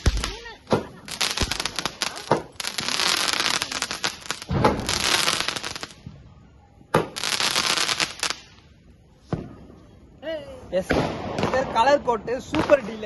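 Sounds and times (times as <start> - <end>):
firework crackling fizz: 0.0 - 6.0, 7.0 - 8.6
firework bangs: 0.0 - 6.1, 6.9 - 8.6, 10.8 - 13.0.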